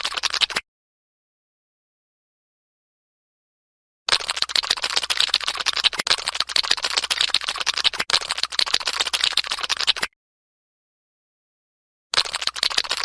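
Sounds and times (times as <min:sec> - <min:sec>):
rapid crackling and clicking: 0:00.0 - 0:00.6, 0:04.1 - 0:10.1, 0:12.1 - 0:13.0.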